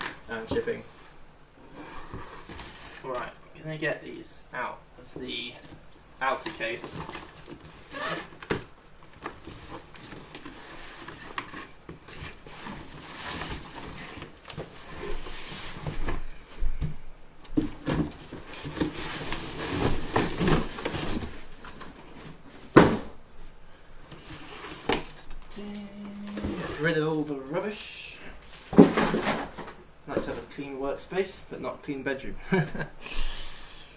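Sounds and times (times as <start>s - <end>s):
cardboard scraping and rustling: 0.0s - 3.4s, 5.6s - 16.3s, 17.6s - 23.1s, 24.1s - 25.4s, 26.2s - 27.0s.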